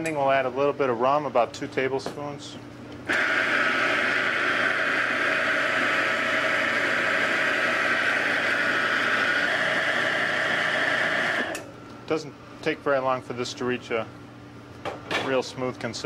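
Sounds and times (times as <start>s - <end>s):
food processor motor running: 3.1s - 11.6s.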